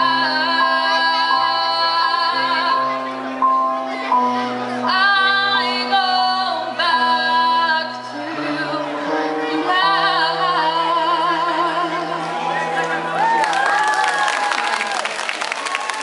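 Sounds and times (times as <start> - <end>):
woman singing with vibrato: 0.0 - 3.2, 4.8 - 13.0
piano: 0.0 - 16.0.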